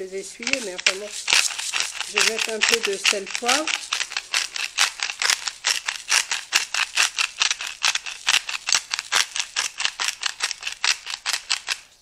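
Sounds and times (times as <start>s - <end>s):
spice grinder ratcheting clicks: 0.4s - 11.9s.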